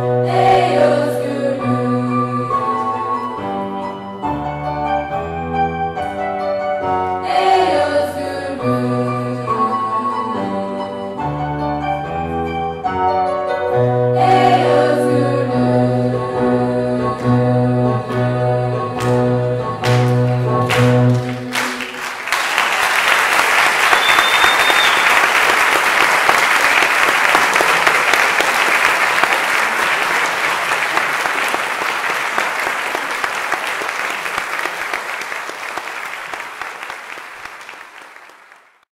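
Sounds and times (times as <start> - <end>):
choir and piano chord: 0.0 - 3.8, 6.9 - 11.4, 13.4 - 22.0
audience applause: 20.7 - 38.8
short high whistle: 23.8 - 25.3.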